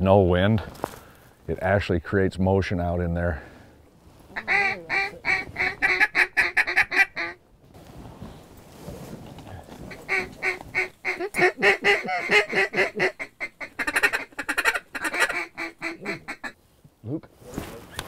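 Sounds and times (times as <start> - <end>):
duck call quacks: 4.4 - 7.4, 10.0 - 16.6.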